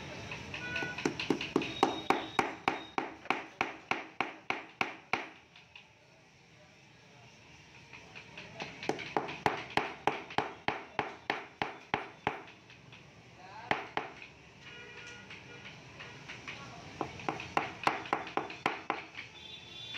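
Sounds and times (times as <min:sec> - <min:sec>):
small hammer tapping wood: 0:00.3 - 0:05.9, 0:07.9 - 0:13.0, 0:13.6 - 0:14.4, 0:15.2 - 0:19.4.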